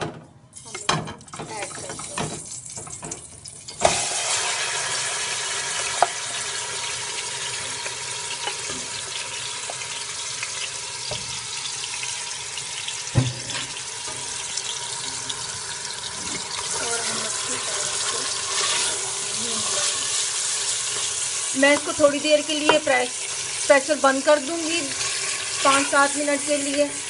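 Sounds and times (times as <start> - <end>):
meat sizzling in hot oil: 1.5 - 27.0
wooden spoon knocking pot: 22.6 - 22.9.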